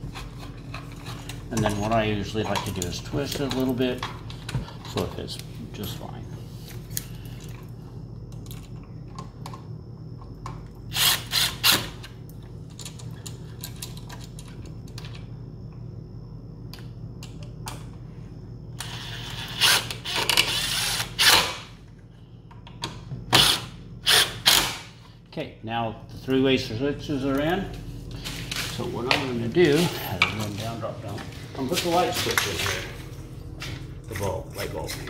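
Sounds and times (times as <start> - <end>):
drill driving screws: 10.9 - 12.0, 18.8 - 21.6, 23.3 - 24.8.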